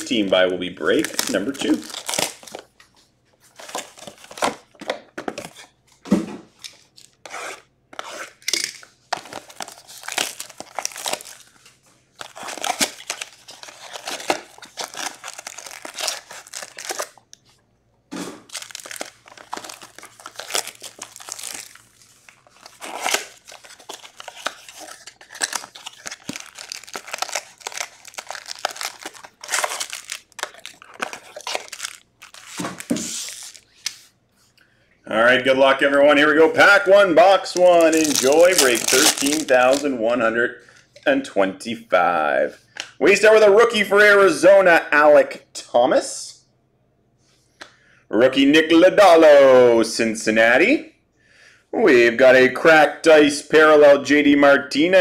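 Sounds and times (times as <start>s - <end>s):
wrappers crinkling: 0.0s - 2.8s, 9.1s - 17.5s, 18.4s - 34.0s, 37.5s - 39.8s
cardboard tearing: 9.2s - 11.5s, 12.2s - 17.2s, 18.5s - 33.7s, 37.8s - 39.8s.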